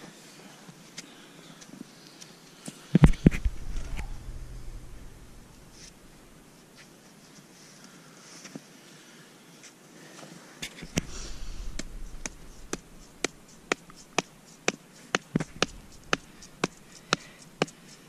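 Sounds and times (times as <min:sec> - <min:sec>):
scuffling: 0:10.6 - 0:17.9.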